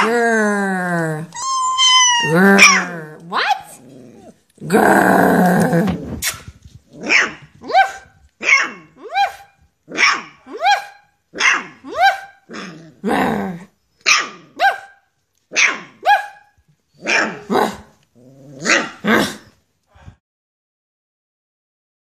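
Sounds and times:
puppy yapping raspily: 0:01.3 - 0:04.4, 0:07.0 - 0:12.8, 0:14.0 - 0:17.9.

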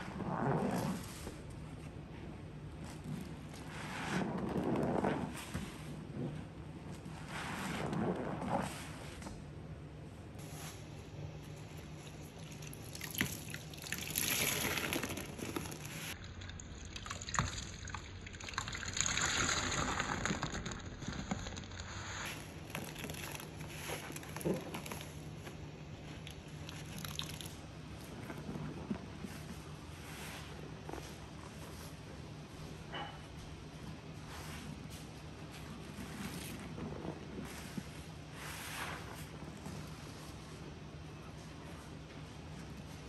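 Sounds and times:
liquid splashing and dripping: 0:12.0 - 0:21.4
liquid gushing: 0:12.4 - 0:16.2, 0:16.8 - 0:24.8.

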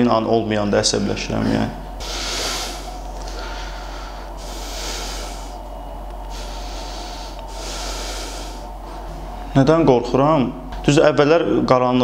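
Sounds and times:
low steady hum: 0:00.0 - 0:12.0
man breathing through nose: 0:02.0 - 0:09.2.

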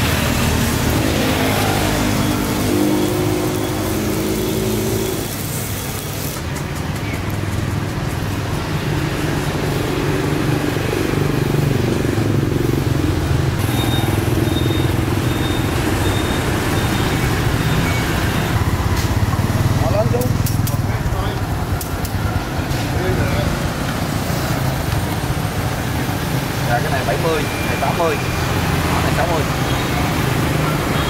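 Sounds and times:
low traffic rumble: 0:00.0 - 0:31.0
motorbike engines passing: 0:00.0 - 0:31.0.

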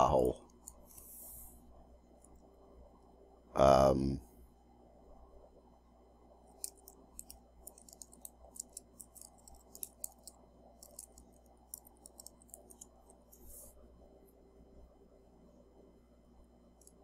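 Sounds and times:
faint keyboard typing: 0:06.5 - 0:13.7, 0:16.7 - 0:17.0.

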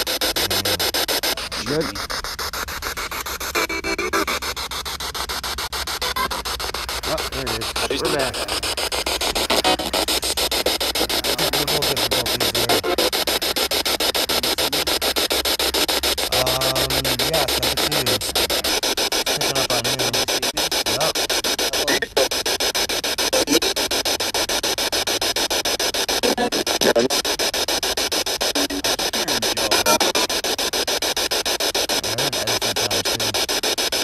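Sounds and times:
voice-like radio fragments: 0:00.0 - 0:02.2, 0:03.1 - 0:34.0
radio static sweeping: 0:00.0 - 0:34.0.

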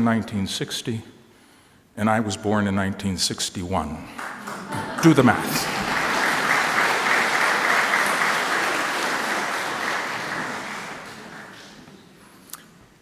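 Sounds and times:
audience applauding: 0:04.2 - 0:12.2.

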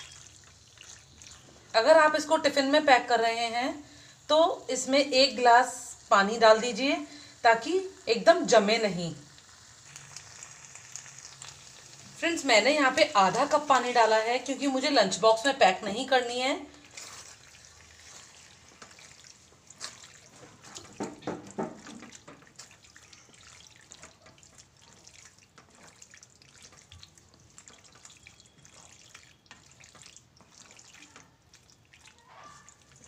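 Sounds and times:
spatula stirring pasta in sauce: 0:12.6 - 0:33.0.

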